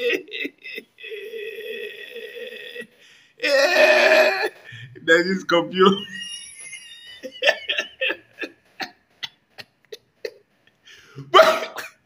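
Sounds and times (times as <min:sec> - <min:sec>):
man laughing: 0:05.8 - 0:10.4.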